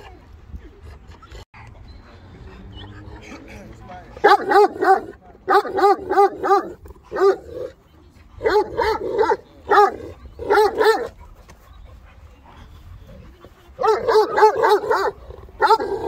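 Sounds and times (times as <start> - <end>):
dog barking: 4.2 - 7.5, 8.4 - 11.1, 13.8 - 16.0.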